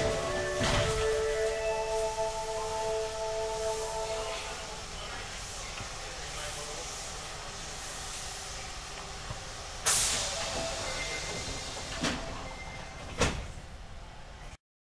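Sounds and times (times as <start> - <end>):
compressed air hissing: 9.8 - 11.9.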